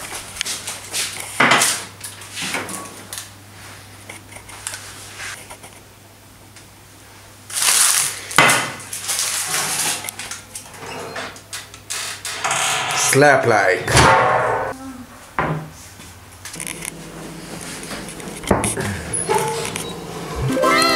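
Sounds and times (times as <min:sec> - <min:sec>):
baking paper rustling: 0:07.5 - 0:10.4.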